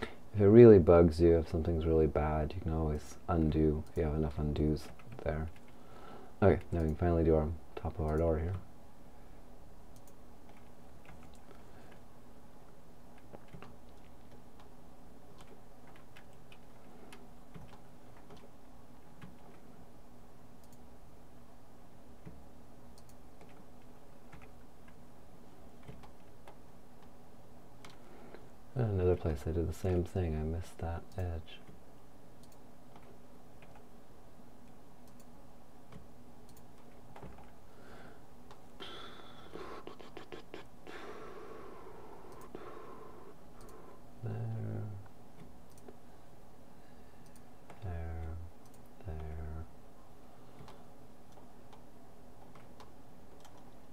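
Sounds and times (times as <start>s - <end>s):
low electrical hum: 0.0s - 53.9s
computer mouse clicks: 9.9s - 12.0s, 13.2s - 14.7s, 15.3s - 18.5s, 20.6s - 20.8s, 22.2s - 23.6s, 25.8s - 27.1s, 32.4s - 33.9s, 35.0s - 35.3s, 35.9s - 37.5s, 42.3s - 42.7s, 43.6s - 43.8s, 45.4s - 46.0s, 47.2s - 49.4s, 50.5s - 53.8s
man humming: 38.8s - 43.4s, 44.2s - 45.1s, 49.1s - 49.7s.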